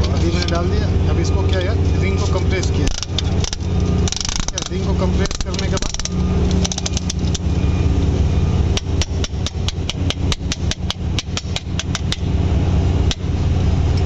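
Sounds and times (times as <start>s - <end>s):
low engine hum: 0.0s - 14.0s
sharp metallic clicks: 2.8s - 7.5s, 8.8s - 12.3s.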